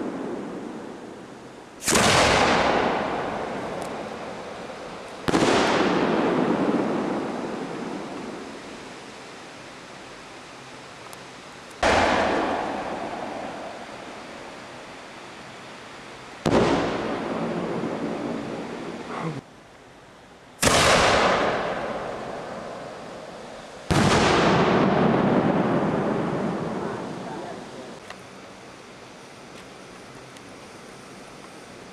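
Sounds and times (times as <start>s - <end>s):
firework bangs with echo: 1.8s - 8.6s, 11.8s - 14.6s, 16.4s - 18.8s, 20.6s - 27.3s.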